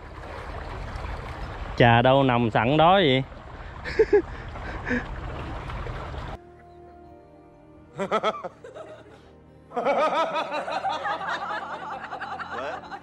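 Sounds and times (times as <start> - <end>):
man laughing: 3.8 - 5.1, 8.0 - 13.0
quiet background music: 5.2 - 13.0.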